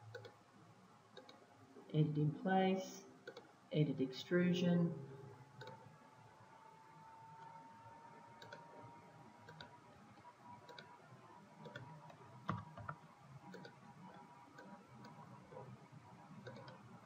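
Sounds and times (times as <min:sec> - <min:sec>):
low room noise: 0:00.0 - 0:17.0
computer mouse clicks: 0:00.1 - 0:00.4, 0:01.2 - 0:01.4, 0:03.2 - 0:03.5, 0:05.6 - 0:05.9, 0:08.4 - 0:08.7, 0:09.4 - 0:11.0, 0:11.6 - 0:15.6, 0:16.4 - 0:16.8.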